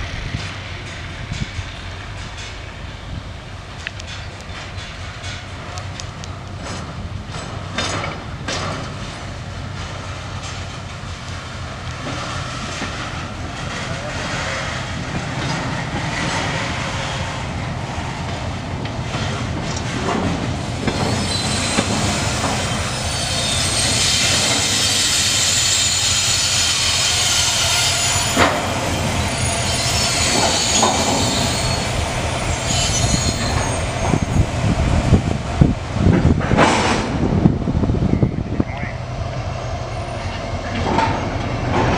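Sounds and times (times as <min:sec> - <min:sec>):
train wheels squealing: 0:20.8 - 0:34.8, 0:39.5 - 0:41.7.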